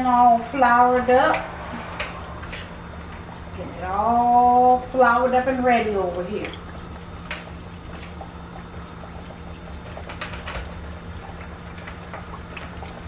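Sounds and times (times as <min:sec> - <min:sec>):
chicken deep-frying in oil: 0:02.2 - 0:13.0.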